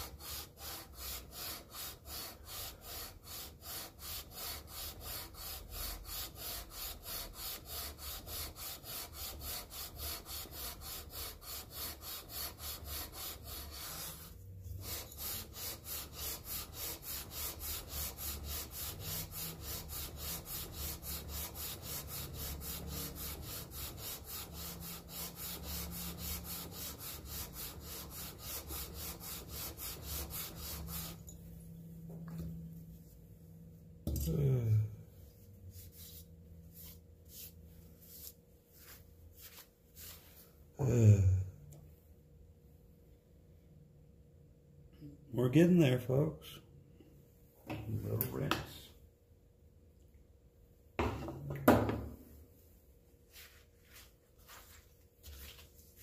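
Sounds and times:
metal rasping on abrasive sheet: 0.0s - 31.2s.

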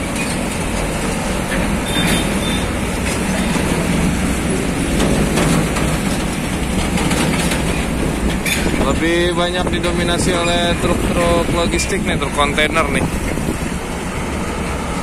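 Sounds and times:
steel trailer frame rattling: 0.0s - 13.7s
truck engine and tyre noise: 0.0s - 15.0s
metallic clanks: 4.6s - 10.9s.

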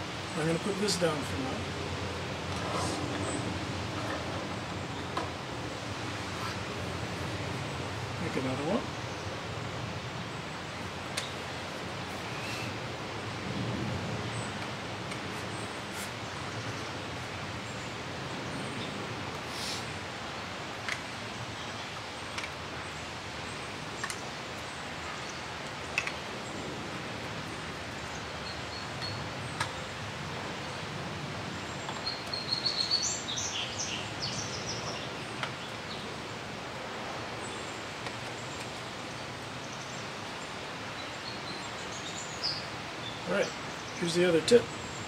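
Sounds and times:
outdoor background hiss: 0.0s - 45.0s
bird chirping: 27.9s - 30.0s, 31.5s - 36.2s, 40.9s - 45.0s.

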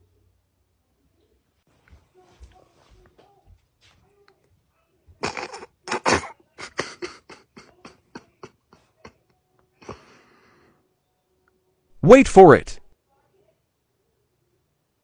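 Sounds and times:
stifled breathy laughter: 6.6s - 9.2s.

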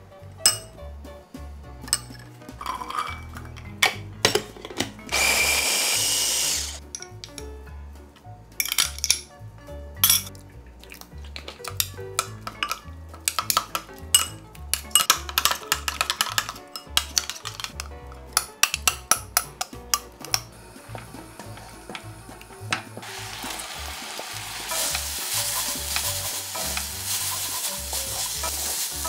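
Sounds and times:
background music: 0.0s - 29.0s
spoons clinking on glass bowl: 0.4s - 0.7s, 1.9s - 3.6s, 10.0s - 10.3s, 11.7s - 17.8s, 24.7s - 29.0s.

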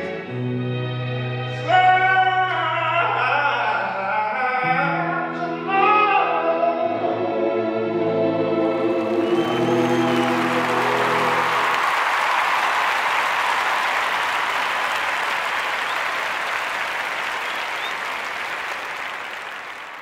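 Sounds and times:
audience applauding: 8.8s - 20.0s.

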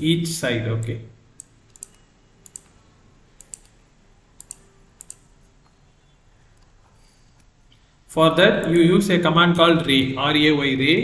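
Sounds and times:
computer mouse clicking: 0.8s - 2.8s, 3.4s - 3.8s, 4.4s - 5.8s, 8.6s - 8.9s.

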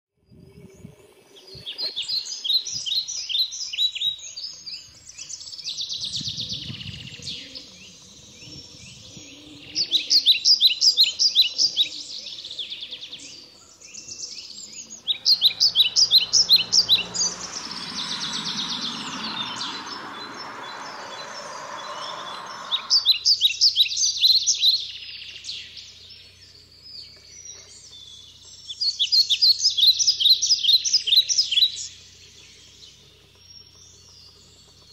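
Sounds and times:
songbirds trilling: 6.4s - 24.2s
steady rushing noise: 14.9s - 23.3s.

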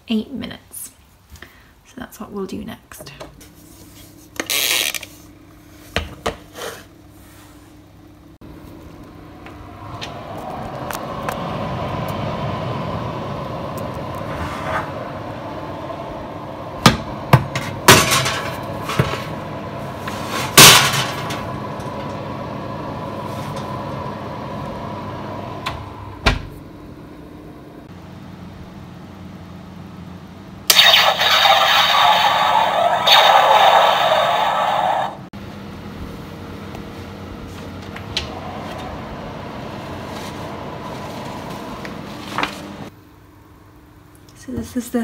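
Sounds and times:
oven humming: 5.2s - 30.7s, 32.3s - 45.0s
loud electronic timer sound effect: 30.7s - 35.3s.

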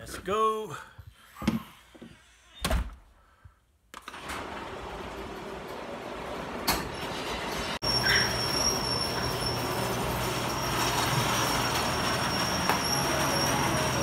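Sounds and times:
garage door opener running: 4.0s - 14.0s.

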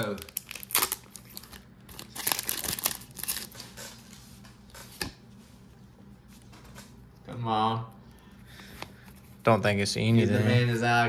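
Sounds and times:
foil wrapper tearing and crinkling: 0.0s - 3.6s.

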